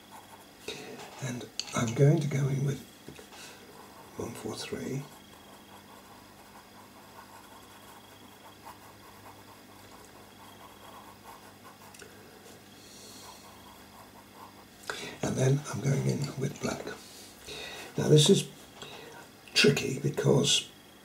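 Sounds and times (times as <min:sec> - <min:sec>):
pencil scratching on paper: 0:00.0 - 0:00.6, 0:03.7 - 0:16.8
low steady hum: 0:00.0 - 0:21.0.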